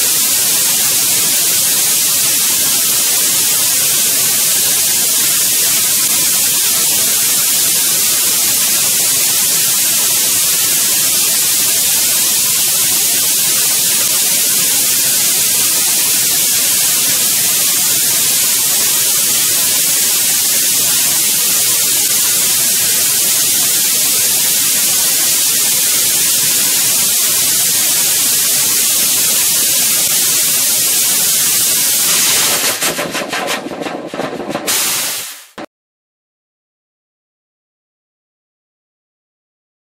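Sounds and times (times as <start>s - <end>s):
rocket engine hissing: 27.4s - 33.8s, 34.6s - 35.6s
engine sputtering and crackling: 32.2s - 34.7s.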